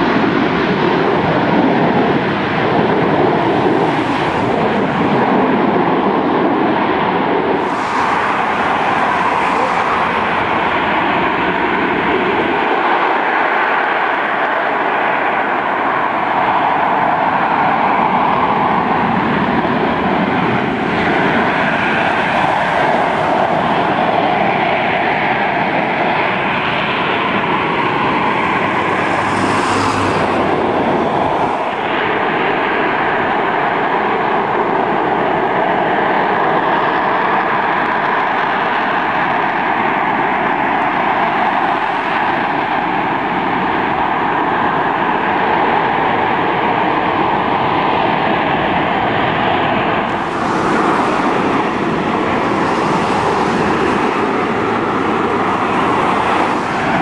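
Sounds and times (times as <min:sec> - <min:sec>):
jet engine roar: 0:00.0 - 0:57.0
sharp jet hiss: 0:07.6 - 0:10.7, 0:50.1 - 0:57.0.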